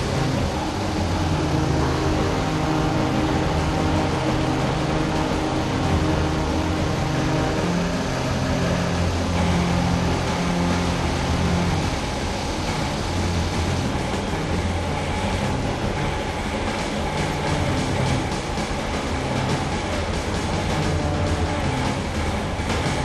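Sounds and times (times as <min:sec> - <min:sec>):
fire roaring with deep rumble: 0:00.0 - 0:23.0.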